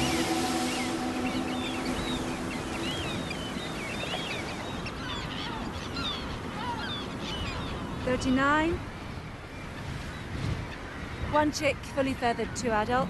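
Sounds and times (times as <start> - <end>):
seabirds calling: 0.0 - 8.1
surf and wind: 0.0 - 13.0.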